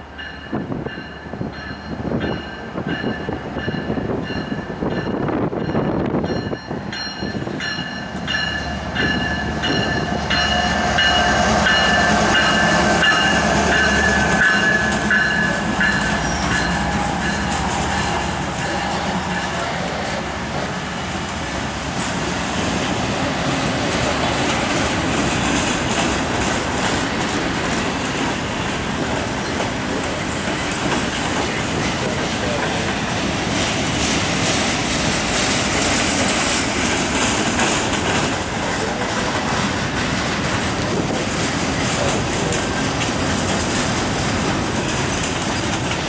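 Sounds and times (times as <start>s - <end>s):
high-pitched rail noise: 0.0s - 46.0s
train wheels clattering over joints: 23.4s - 46.0s.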